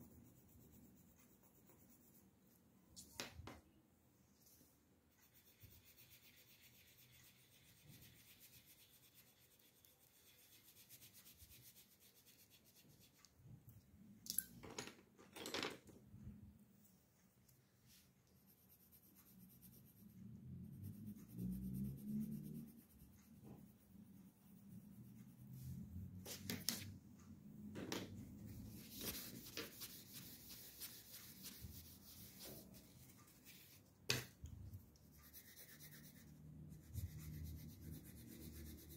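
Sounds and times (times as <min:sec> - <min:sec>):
coloured pencil shading on paper: 0:00.0 - 0:02.6, 0:05.1 - 0:13.3, 0:18.3 - 0:26.4, 0:28.6 - 0:38.9.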